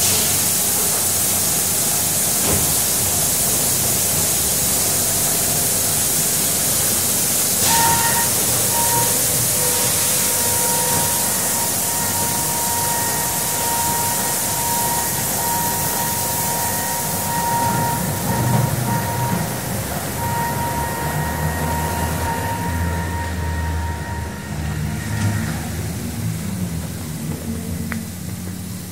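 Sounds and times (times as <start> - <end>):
water spray hissing: 0.0 - 17.3
steady machine whine: 0.8 - 28.9.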